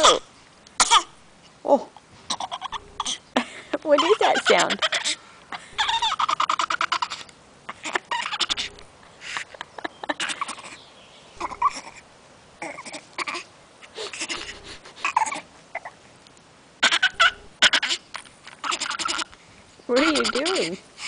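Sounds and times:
baby making throaty noises: 11.4s - 16.0s.

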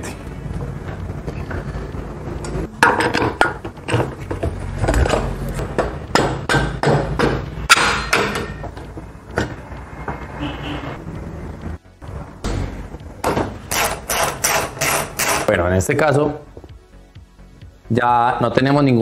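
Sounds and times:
metal knocks and clunks: 2.4s - 10.2s.

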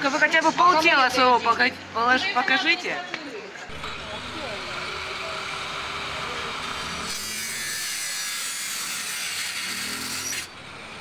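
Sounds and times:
saw cutting plywood: 3.7s - 11.0s.

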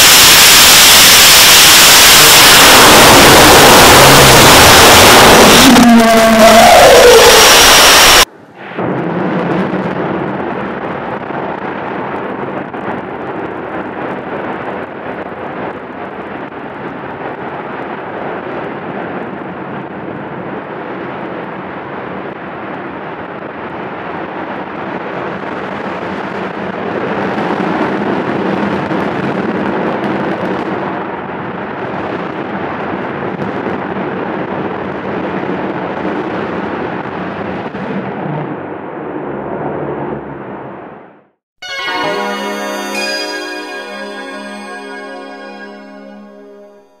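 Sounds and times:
distant rocket engines roaring: 0.0s - 41.2s.

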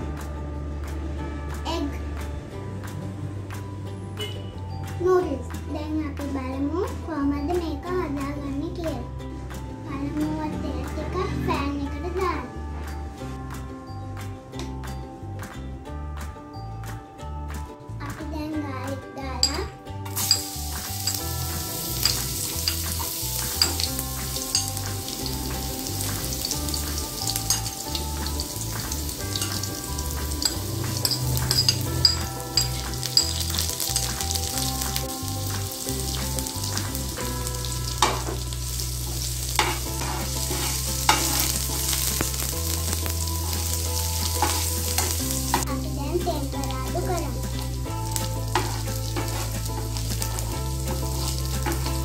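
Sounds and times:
food sizzling in oil: 19.4s - 52.0s
utensil scraping a pan: 39.5s - 42.2s, 48.2s - 50.2s.

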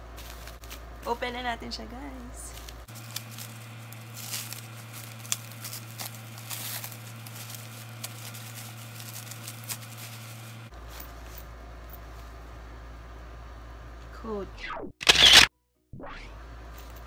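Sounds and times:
plastic wrapping crinkling: 0.0s - 1.0s, 2.2s - 10.7s.

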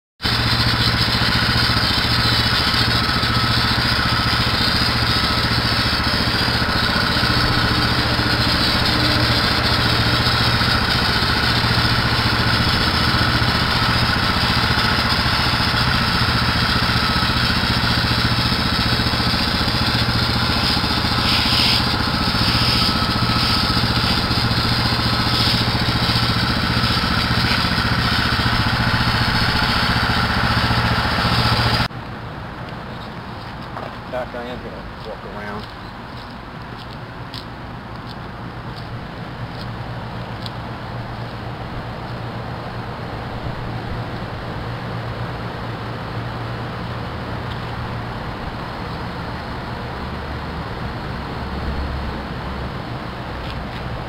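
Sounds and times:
pressure washer engine running: 0.2s - 31.9s
water spray hissing: 0.3s - 31.9s.

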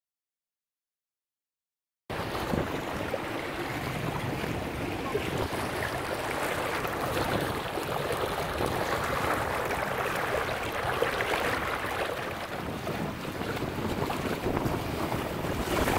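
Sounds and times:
choppy water lapping: 2.1s - 15.9s.

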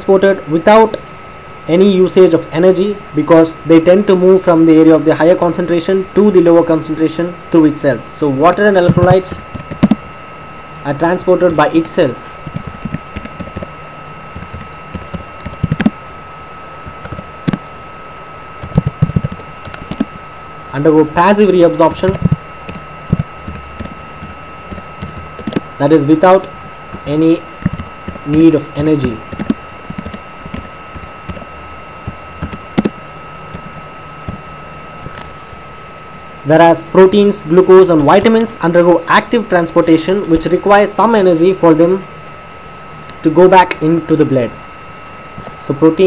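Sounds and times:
faint high-pitched hum: 0.0s - 46.0s
computer keyboard typing: 8.9s - 10.0s, 12.4s - 16.0s, 16.9s - 17.6s, 18.6s - 20.1s, 22.0s - 25.7s, 27.6s - 34.4s.

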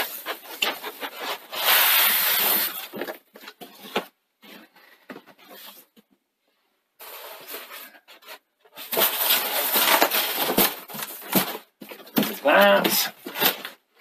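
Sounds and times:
foam squeaking against cardboard: 1.4s - 3.0s
foam packing rustling: 7.0s - 14.0s.

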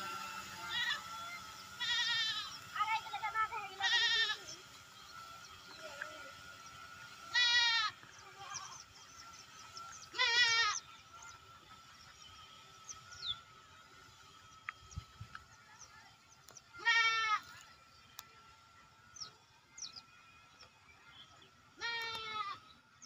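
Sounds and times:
livestock bleating: 0.6s - 1.1s, 1.7s - 2.6s, 3.7s - 4.6s, 7.3s - 8.8s, 10.1s - 10.8s, 16.8s - 17.6s, 21.8s - 22.6s.

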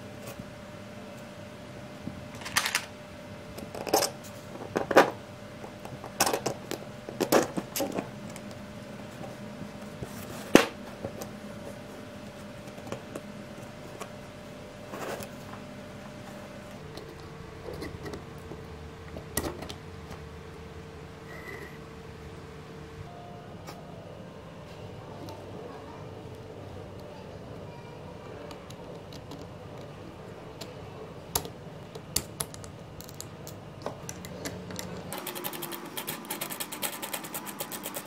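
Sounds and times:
faint steady hum: 0.0s - 38.0s.

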